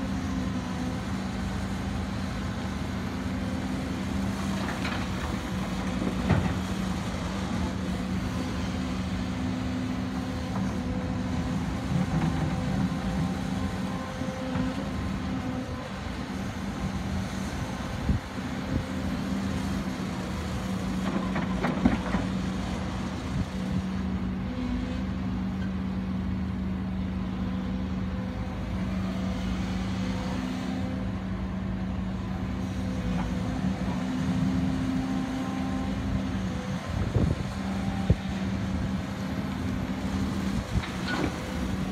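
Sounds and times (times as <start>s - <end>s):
excavator diesel engine running: 0.0s - 41.9s.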